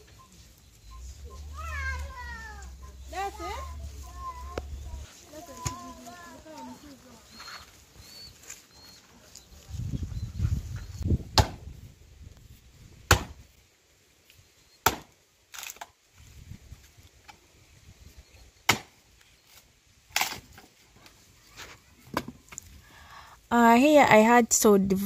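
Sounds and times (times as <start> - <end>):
firewood chopping strikes: 11.3 - 11.7, 13.0 - 13.5, 14.8 - 15.9, 18.7 - 19.0.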